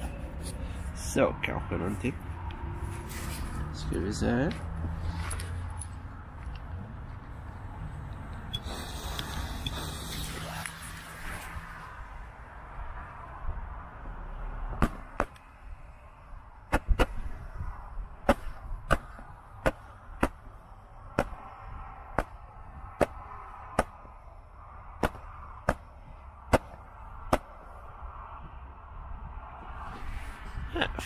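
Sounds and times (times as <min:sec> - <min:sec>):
hiss of burning fireworks: 0:08.6 - 0:10.8.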